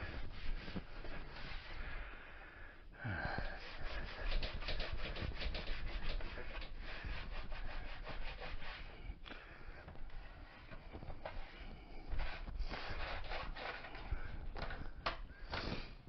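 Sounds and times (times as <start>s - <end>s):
rapid scrubbing: 3.4s - 15.9s.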